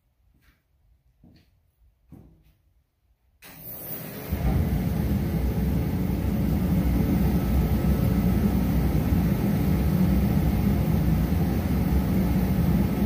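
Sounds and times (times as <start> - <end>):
heater low rumble: 4.2 - 13.0.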